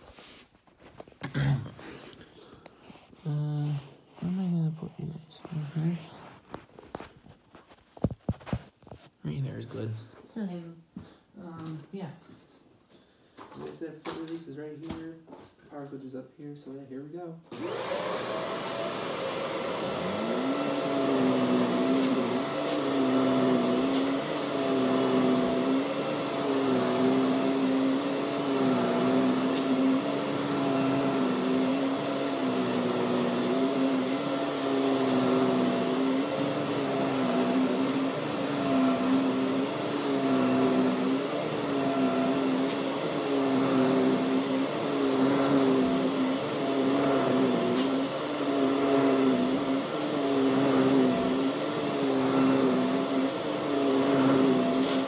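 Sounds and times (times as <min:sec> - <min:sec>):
vacuum cleaner running on carpet: 0:05.4 - 0:08.6, 0:17.5 - 0:55.0.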